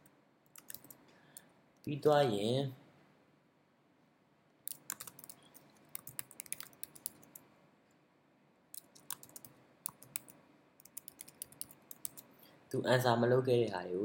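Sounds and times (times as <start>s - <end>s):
typing on computer keyboard: 0.5s - 1.0s, 4.7s - 7.4s, 8.8s - 12.3s.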